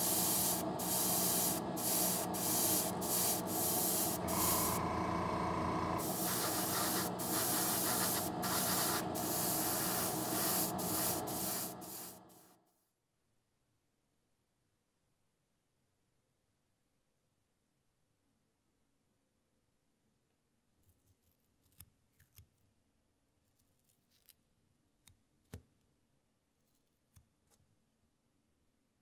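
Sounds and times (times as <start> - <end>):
airbrush spraying hiss: 0.0 - 4.8, 6.0 - 12.5.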